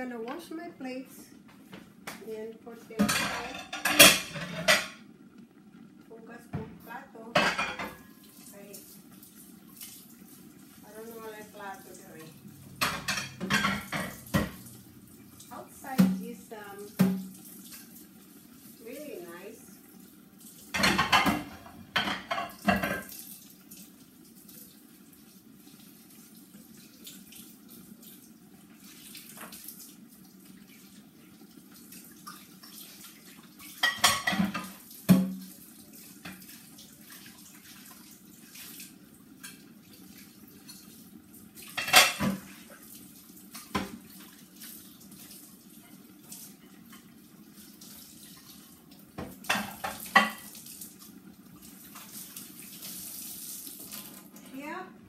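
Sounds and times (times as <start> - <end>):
tap water running: 0.0 - 55.0
plates and cutlery clattering: 3.0 - 5.0, 7.4 - 8.1, 12.8 - 14.6, 20.7 - 23.1, 33.7 - 35.4, 41.7 - 42.5.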